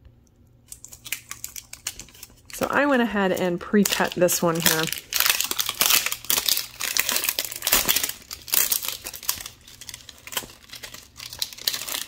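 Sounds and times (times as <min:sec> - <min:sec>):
crinkly wrapping being peeled: 0:00.6 - 0:12.0.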